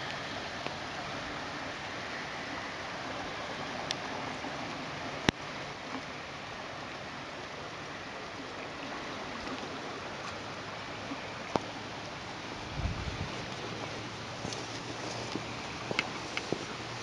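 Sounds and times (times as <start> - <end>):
flooded creek rushing: 0.0 - 17.0.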